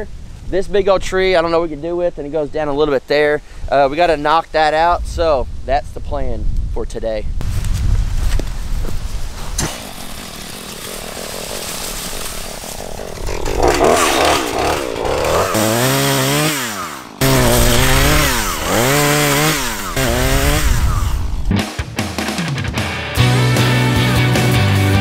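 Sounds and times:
chainsaw revving cutting wood: 9.6 - 21.5.

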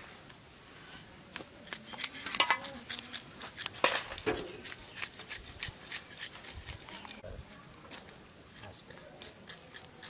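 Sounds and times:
kitchen utensils and dishes clattering: 1.9 - 2.8.

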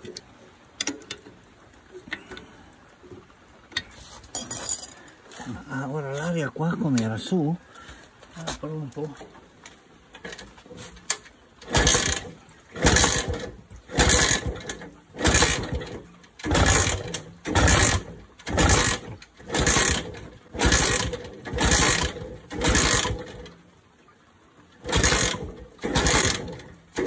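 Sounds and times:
motorcycle kick-start cranking: 10.2 - 23.6, 24.8 - 27.0.

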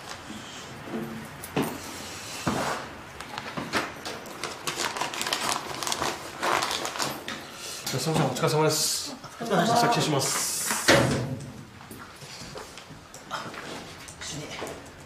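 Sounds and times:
paper rustling: 3.4 - 7.3.

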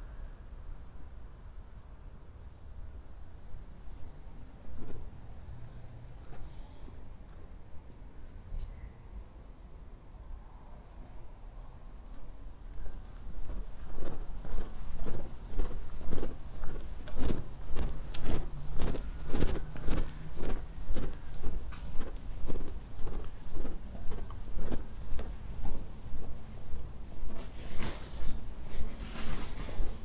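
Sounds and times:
footsteps walking: 12.8 - 30.0.

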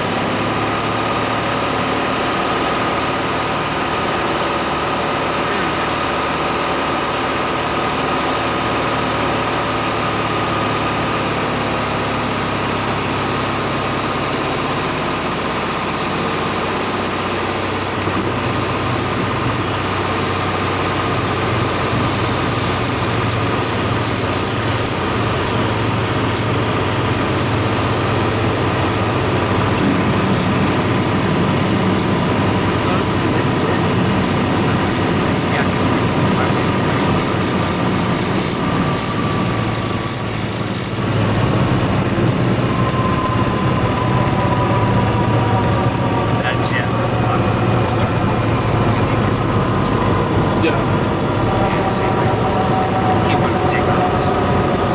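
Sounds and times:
airplane engine at low power: 0.0 - 54.9
low steady rumble: 17.4 - 54.9.

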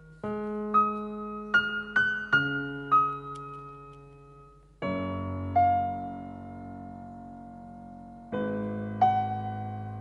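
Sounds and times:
piano music: 0.0 - 10.0.

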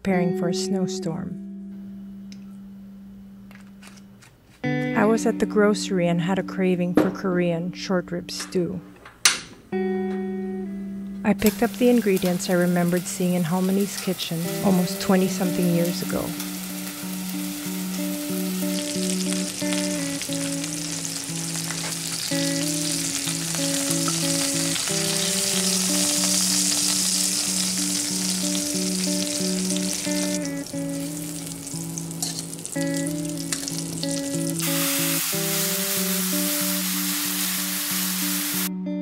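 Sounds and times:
background music: 0.0 - 39.0
meat sizzling in hot fat: 11.5 - 38.7.

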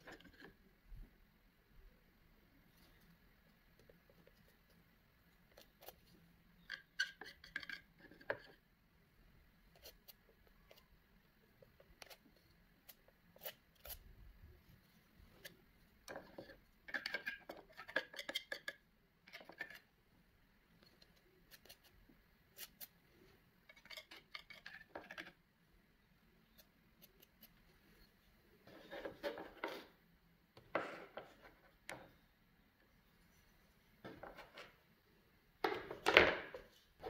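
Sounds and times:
palette knife scraping: 11.8 - 14.0.

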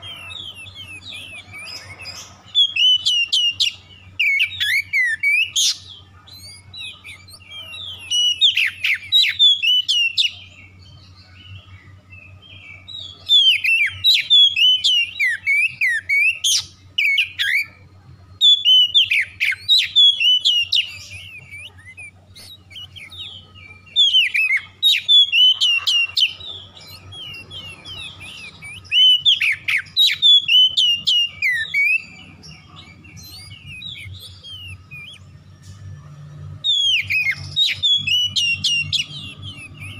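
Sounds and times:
bird singing whistles and chirps: 0.0 - 39.9.

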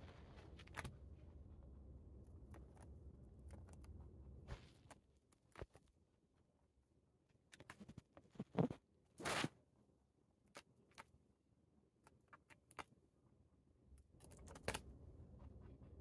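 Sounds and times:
rabbit chewing crunchy leaves: 0.0 - 6.0, 14.0 - 15.9.

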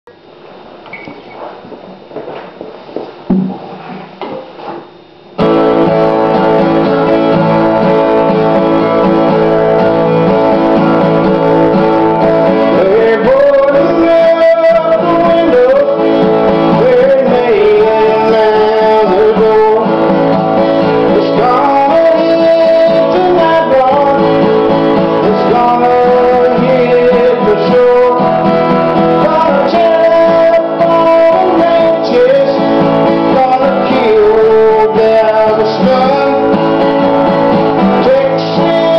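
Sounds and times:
acoustic guitar strumming: 3.3 - 4.5, 5.4 - 38.9.

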